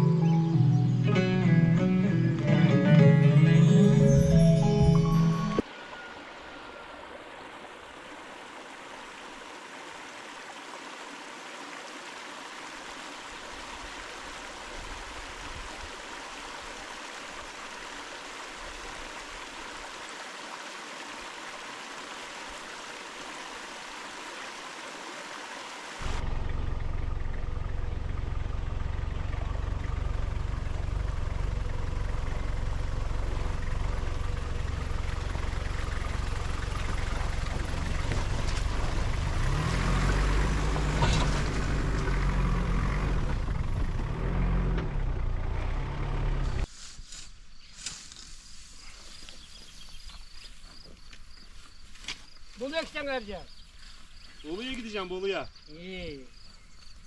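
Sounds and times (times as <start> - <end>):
flowing stream water: 3.6 - 43.6
car driving heard from inside: 26.0 - 46.7.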